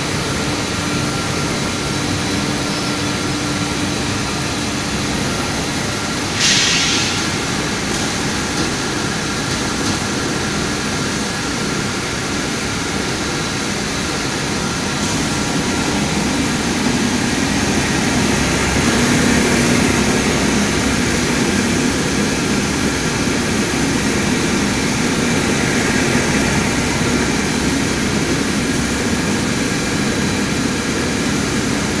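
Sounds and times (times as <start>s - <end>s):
brief hiss: 6.3s - 7.5s.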